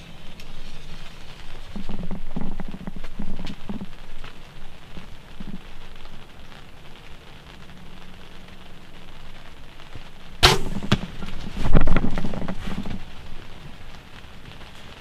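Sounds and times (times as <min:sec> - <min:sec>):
light rain: 0:00.0 - 0:15.0
arrow striking: 0:10.4 - 0:11.9
loud thump: 0:10.4 - 0:12.0.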